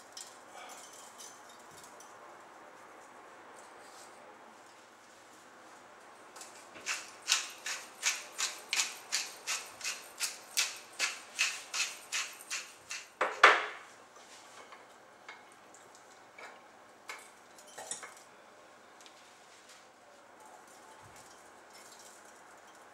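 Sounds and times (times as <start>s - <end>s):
pepper mill grinding: 6.4s - 13.2s.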